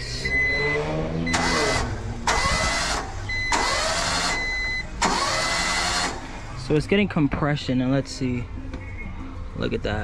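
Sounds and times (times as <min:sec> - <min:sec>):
high electronic beep: 0:00.0 - 0:01.9
engine cranking on starter: 0:01.3 - 0:06.2.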